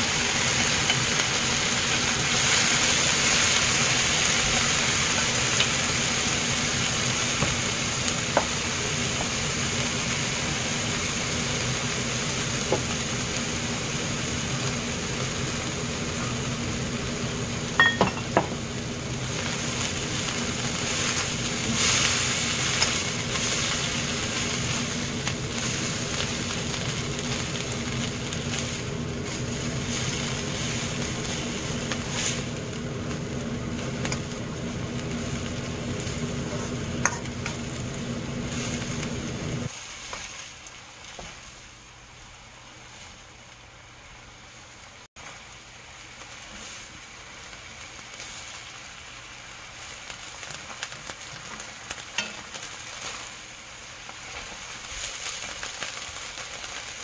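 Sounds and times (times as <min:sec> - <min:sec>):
vegetables sizzling in oil: 0:00.0 - 0:57.0
steady low hum: 0:22.5 - 0:39.7.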